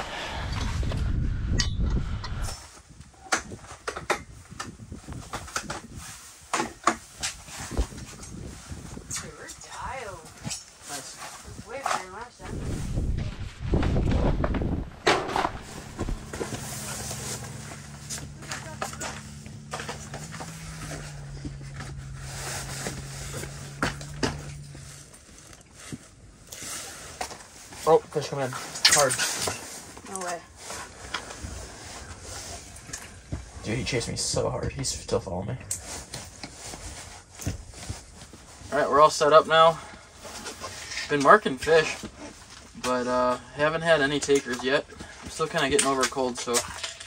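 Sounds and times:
steady low hum: 0:00.0 - 0:02.6, 0:12.4 - 0:26.4
low rumble: 0:00.0 - 0:02.7, 0:12.4 - 0:26.4
gear rustling: 0:07.2 - 0:33.9.

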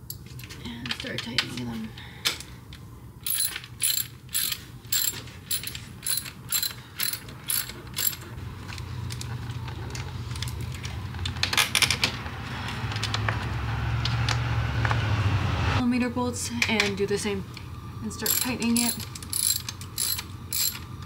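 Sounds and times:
socket ratchet wrench clicking: 0:03.2 - 0:08.2, 0:18.3 - 0:20.8.

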